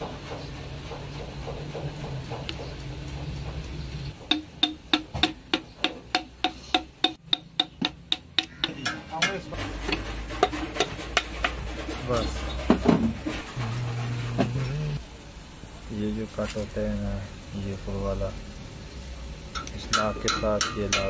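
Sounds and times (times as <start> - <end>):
steady low hum: 0.0 - 21.0
sharp metallic taps: 0.9 - 11.6, 19.5 - 21.0.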